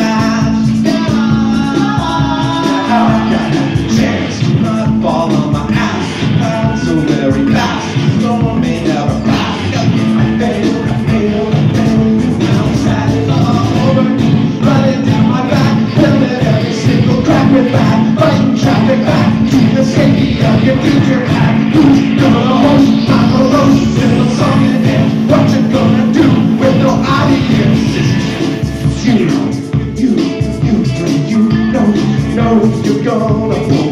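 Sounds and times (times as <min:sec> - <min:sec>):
bass guitar: 0:00.0 - 0:33.9
distorted electric guitars: 0:00.0 - 0:33.9
driving drum beat: 0:00.0 - 0:33.9.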